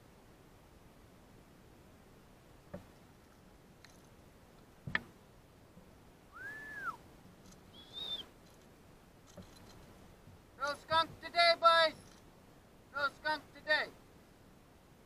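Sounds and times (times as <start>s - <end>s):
whistled notes: 6.3s - 7.0s, 7.7s - 8.3s.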